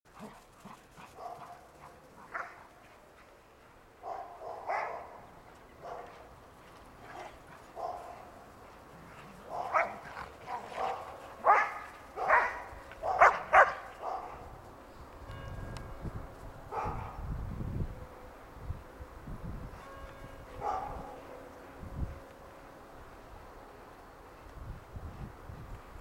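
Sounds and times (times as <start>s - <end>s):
dogs barking: 0.2s - 2.7s, 4.0s - 6.3s, 7.1s - 8.4s, 9.2s - 14.5s, 16.7s - 17.2s, 20.6s - 21.3s.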